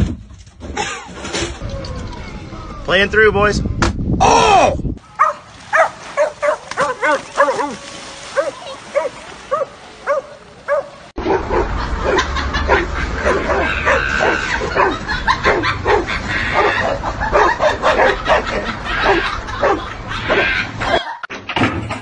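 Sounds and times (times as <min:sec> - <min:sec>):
dogs barking: 0:05.1 - 0:21.2.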